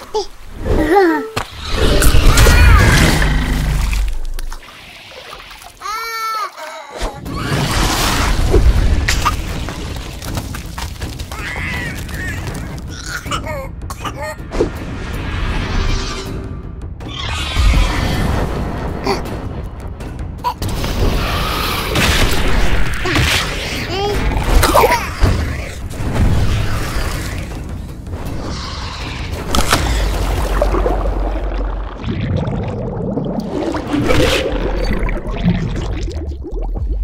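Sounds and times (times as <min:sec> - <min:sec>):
creature cries: 0:00.8 - 0:03.6, 0:11.3 - 0:13.5
dramatic music: 0:07.2 - 0:32.7.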